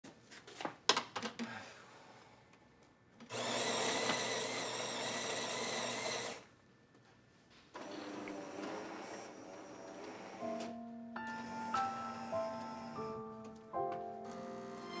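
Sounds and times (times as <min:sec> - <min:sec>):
espresso machine whirring: 0:03.3 - 0:06.4
music: 0:10.3 - 0:15.0.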